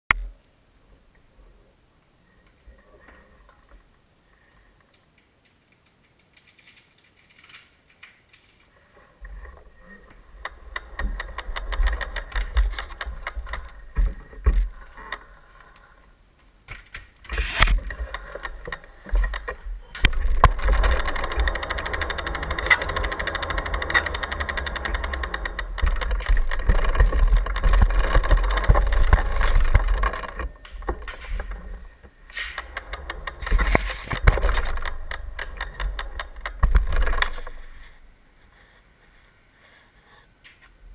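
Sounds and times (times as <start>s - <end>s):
bicycle frame rumble and knocks: 9.3s - 15.6s, 16.7s - 38.1s
freewheel clicking rapidly: 10.4s - 14.0s, 17.6s - 31.6s, 32.5s - 37.8s.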